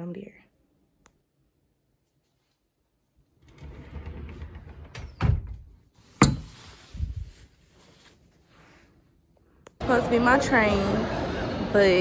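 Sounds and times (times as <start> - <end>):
rustling in a wardrobe: 2.0 - 9.3.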